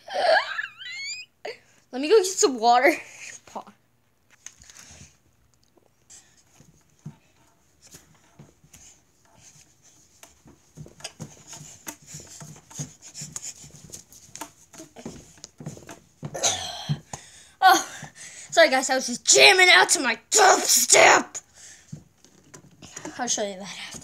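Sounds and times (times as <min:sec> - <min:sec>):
rustling: 0:04.0 - 0:16.4
person breathing: 0:16.6 - 0:18.6, 0:21.5 - 0:22.0.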